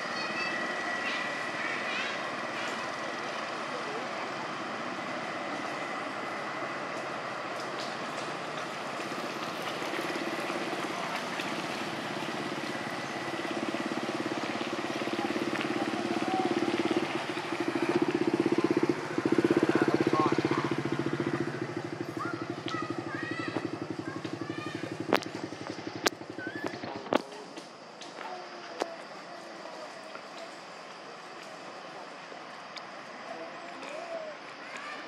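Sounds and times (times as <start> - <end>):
small engine running: 0.0 - 27.2
faint high chirps: 19.7 - 27.0.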